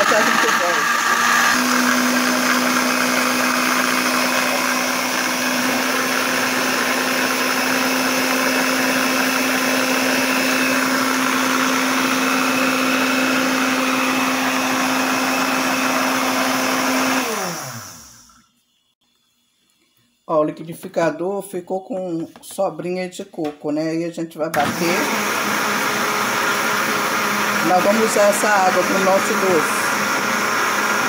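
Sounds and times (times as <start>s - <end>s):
blender chopping coconut: 0.0s - 18.3s, 24.6s - 31.0s.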